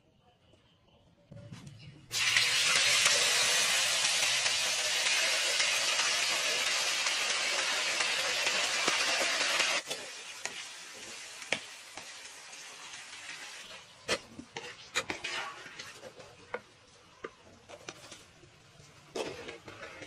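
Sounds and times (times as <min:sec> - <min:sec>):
food deep-frying in hot oil: 0:02.1 - 0:20.0
wire strainer scraping a wok: 0:14.1 - 0:16.4, 0:19.1 - 0:20.0.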